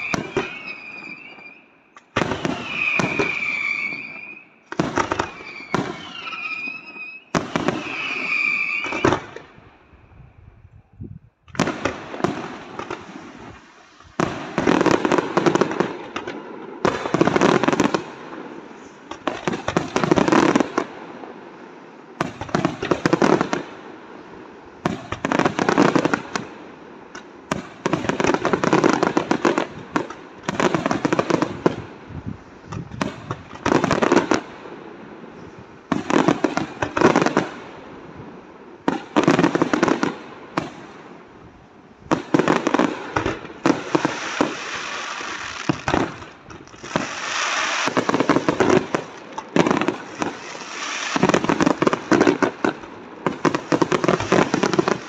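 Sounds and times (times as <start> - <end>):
firework bangs: 0.0 - 9.6, 11.5 - 21.4, 22.1 - 55.0
firework whistling: 0.0 - 10.3, 11.5 - 20.7, 42.1 - 55.0.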